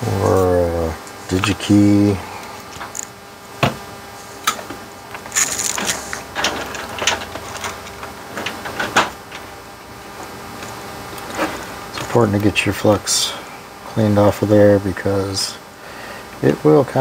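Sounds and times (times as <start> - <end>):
knocks on wooden workbench: 3.6 - 3.8.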